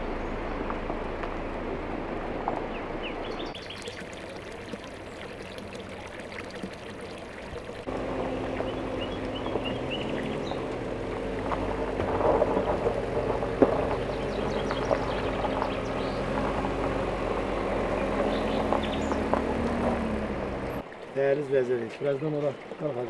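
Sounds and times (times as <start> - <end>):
engine hum: 0.0 - 22.8
tyres crunching on gravel: 7.9 - 21.3.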